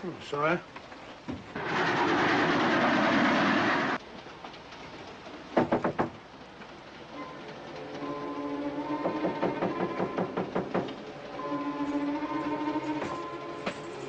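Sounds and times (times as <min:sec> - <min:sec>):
train rushing and rattling: 0:00.0 - 0:14.0
sharp knocks: 0:05.6 - 0:06.2, 0:09.0 - 0:11.0.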